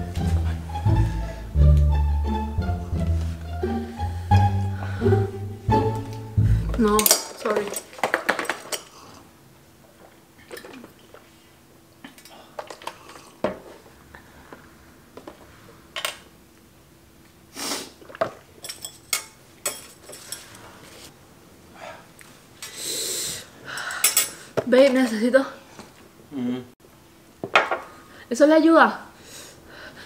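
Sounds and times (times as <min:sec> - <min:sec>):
chopsticks clinking on metal pot: 0:06.9 - 0:07.9.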